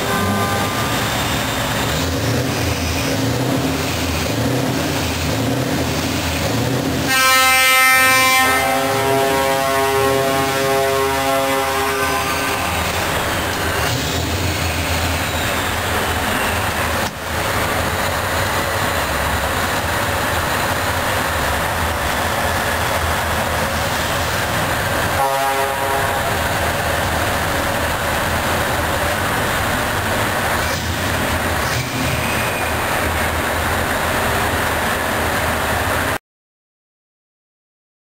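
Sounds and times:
truck horn blast: 0.0s - 1.7s, 7.0s - 14.0s, 25.1s - 26.5s
truck engine running: 0.1s - 7.1s, 8.6s - 36.2s.

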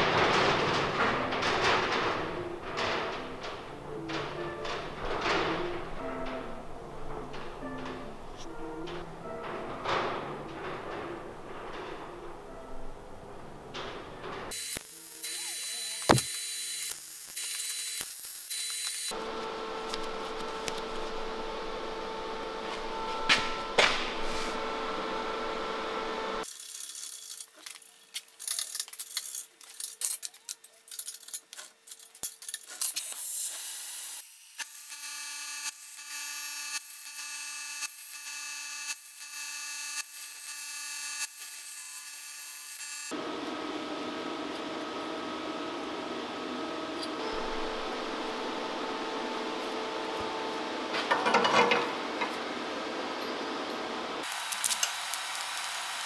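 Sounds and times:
steady machine noise: 0.0s - 26.4s, 43.1s - 56.0s.

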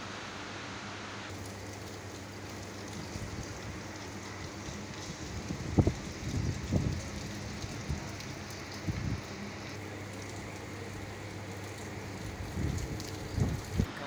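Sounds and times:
rain hiss: 0.0s - 14.0s
wind buffeting microphone: 2.9s - 9.4s, 12.2s - 13.9s.

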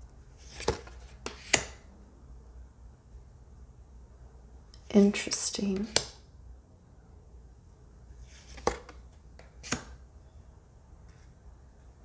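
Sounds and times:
cards snapping as flipped: 0.4s - 1.8s, 8.4s - 10.0s.

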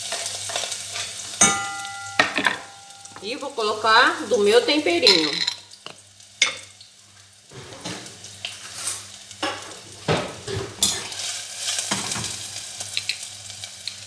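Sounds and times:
onion sizzling in oil: 0.0s - 14.0s
pan knocking on burner grate: 1.4s - 3.4s.

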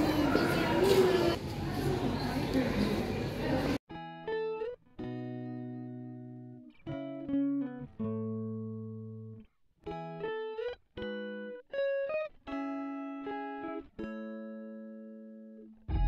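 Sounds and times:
guitar chords ringing: 3.9s - 16.0s.

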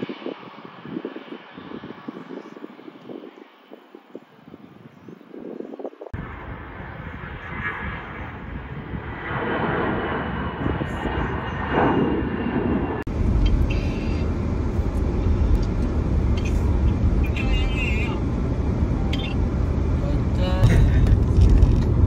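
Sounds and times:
jet engines whining: 5.3s - 22.0s
heavy low rumble: 6.1s - 22.0s.

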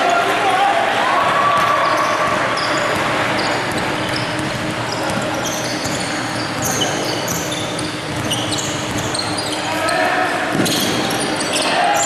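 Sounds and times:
gym background noise: 0.0s - 12.0s
basketball dribbling: 1.3s - 9.6s
sneakers squeaking on hardwood: 1.4s - 12.0s.

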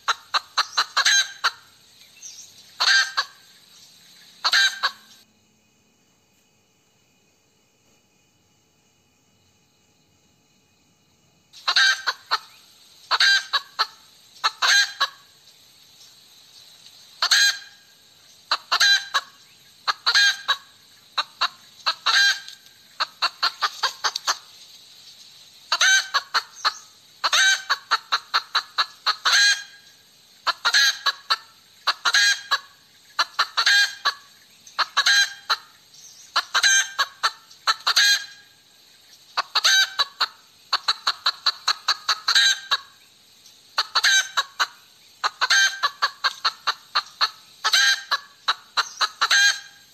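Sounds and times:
hen cackling: 0.0s - 1.8s, 2.7s - 3.6s, 4.4s - 5.2s, 11.6s - 15.4s, 17.2s - 24.5s, 25.7s - 38.6s, 39.4s - 43.0s, 43.7s - 49.9s.

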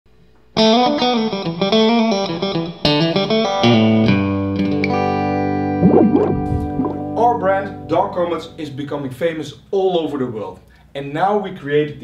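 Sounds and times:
plucked guitar notes: 5.6s - 8.3s
low bass: 5.8s - 7.8s.

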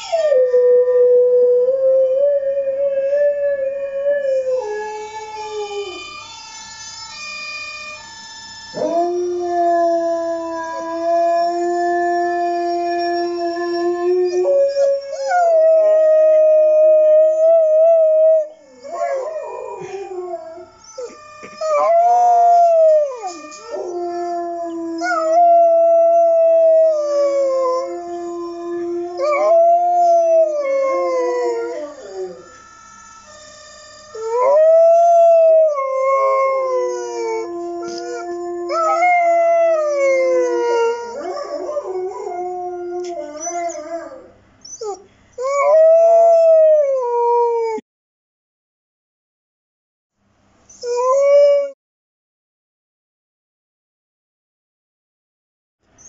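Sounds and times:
lower steady howl: 0.0s - 47.8s
dog howling: 8.8s - 32.5s, 34.1s - 47.8s.

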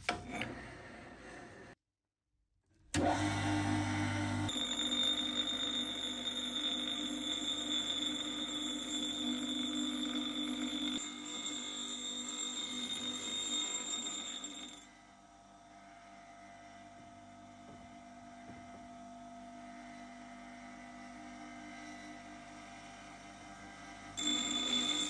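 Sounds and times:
grinder motor humming: 3.0s - 14.9s, 23.5s - 25.0s
grinder wheel grinding metal: 4.0s - 14.9s, 24.2s - 25.0s.

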